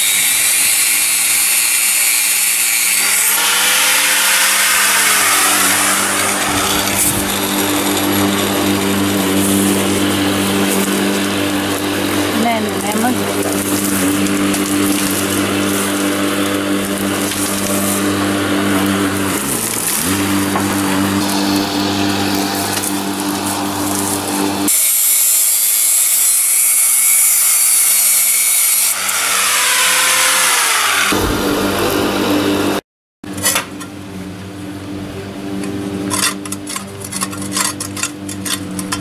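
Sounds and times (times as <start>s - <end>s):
high-pitched grinding of steel: 0.0s - 31.2s
angle grinder motor hum: 0.0s - 32.8s.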